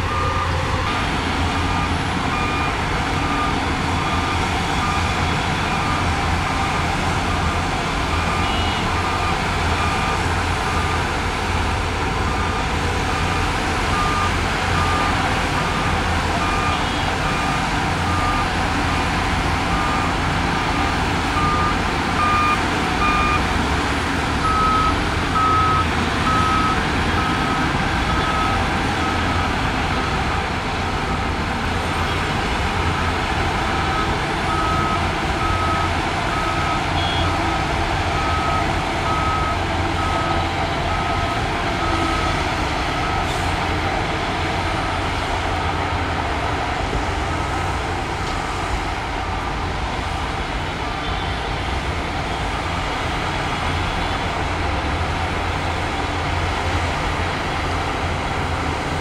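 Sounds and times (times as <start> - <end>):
reversing alarm beeping: 0.0 - 23.5, 24.4 - 30.4, 33.7 - 43.5
diesel engine rumble: 0.0 - 59.0.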